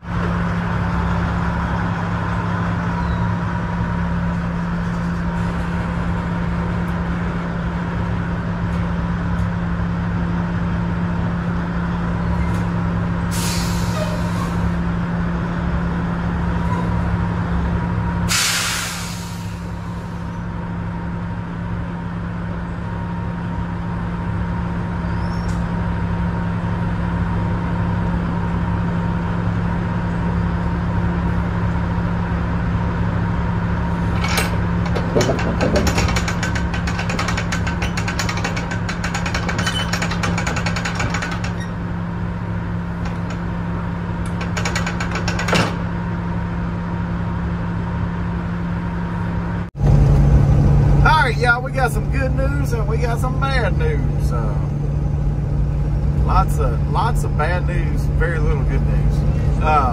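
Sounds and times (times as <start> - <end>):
air hiss bursts: 18.3 - 19.7.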